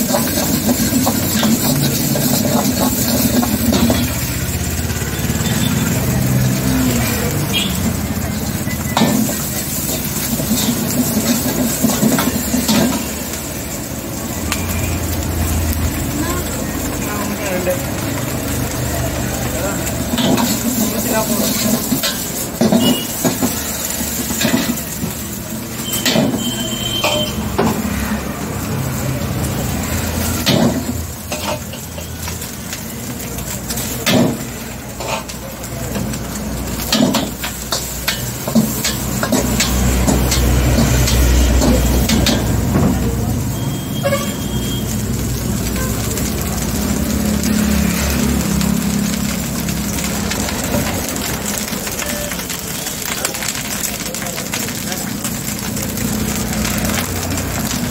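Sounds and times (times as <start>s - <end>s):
food sizzling: 0.0s - 57.9s
vehicle engine rumble: 0.0s - 57.9s
ladle squealing on wok: 19.8s - 24.9s, 25.7s - 28.0s, 43.3s - 46.4s
metal ladle scraping a wok: 25.9s - 27.8s, 30.4s - 32.2s, 34.9s - 35.4s
metal ladle clanking on wok: 27.0s - 27.8s.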